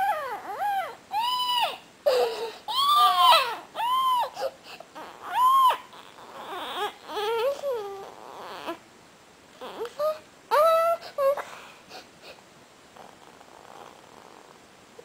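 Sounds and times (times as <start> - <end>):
child crying: 0.0 - 8.8, 9.6 - 11.6.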